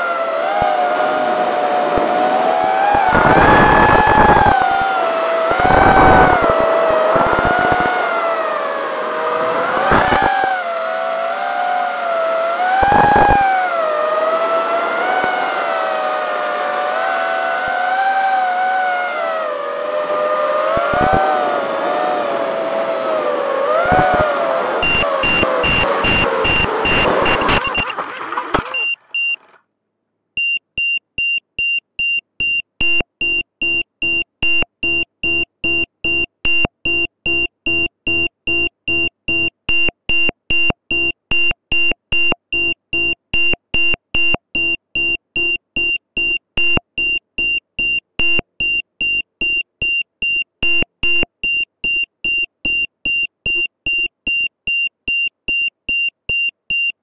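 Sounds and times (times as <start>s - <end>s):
electronic beeper short beeps: 24.8s - 28.0s, 28.7s - 29.5s, 30.4s - 57.0s.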